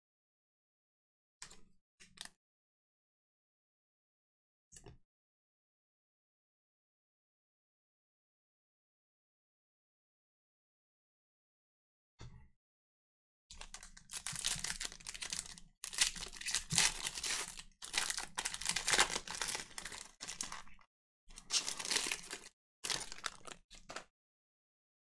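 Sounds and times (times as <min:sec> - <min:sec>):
wrapper crinkling and tearing: 0:13.6 - 0:24.0.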